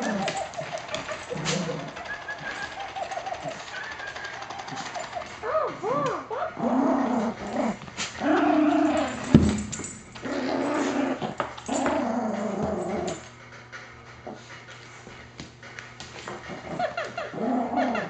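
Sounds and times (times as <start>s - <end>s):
dog whining yips: 0.0s - 6.6s
dog growling: 0.0s - 9.5s, 10.2s - 14.7s, 16.3s - 18.0s.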